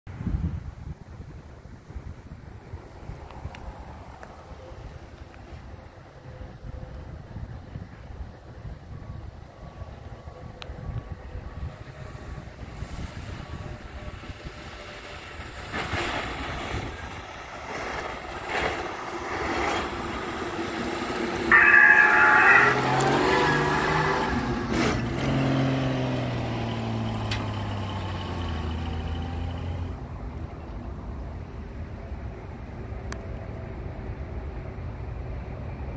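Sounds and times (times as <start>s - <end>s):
truck driving past: 9.6s - 30.6s
loud tone: 21.5s - 23.5s.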